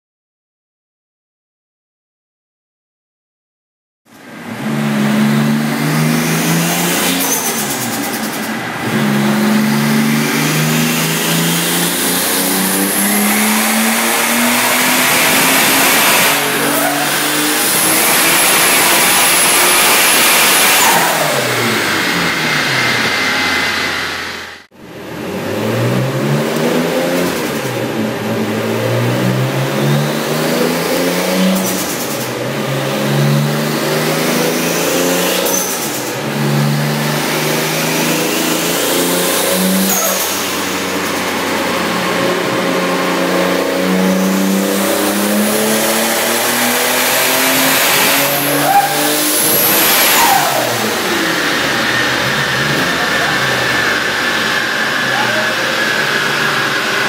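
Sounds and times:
car engine revving: 0:04.2 - 0:57.0
turbo whistle: 0:48.3 - 0:51.0.

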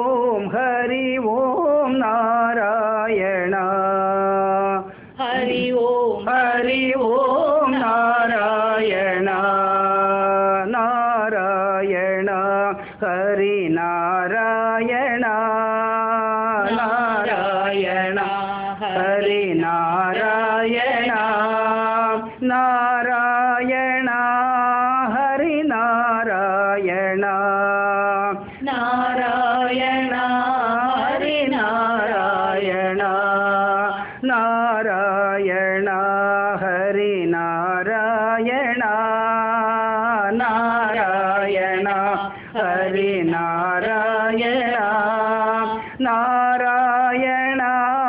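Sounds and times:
male and female voices singing: 0:00.0 - 0:48.0.

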